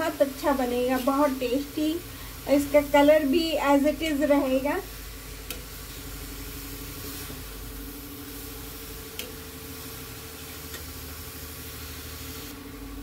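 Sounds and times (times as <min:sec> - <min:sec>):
faint steady hum: 0:00.0 - 0:13.0
vegetables sizzling in pan: 0:00.0 - 0:13.0.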